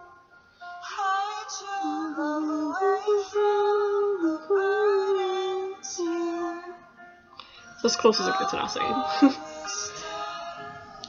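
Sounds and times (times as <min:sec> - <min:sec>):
music: 0:00.0 - 0:11.0
woman singing slow melody: 0:07.8 - 0:11.0.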